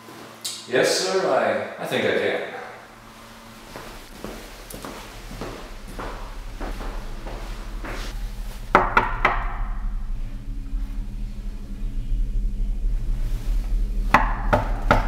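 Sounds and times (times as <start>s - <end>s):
steady low hum: 0.0s - 15.0s
sharp knocks: 8.7s - 9.7s, 14.1s - 15.0s.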